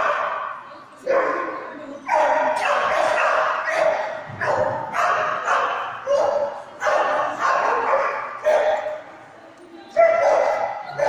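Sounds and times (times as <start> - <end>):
dog barking: 2.1 - 9.0, 10.0 - 11.0.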